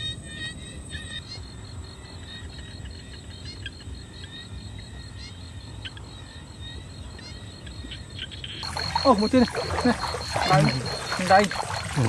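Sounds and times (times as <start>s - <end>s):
crickets trilling: 0.0s - 12.0s
short insect chirps: 5.1s - 12.0s.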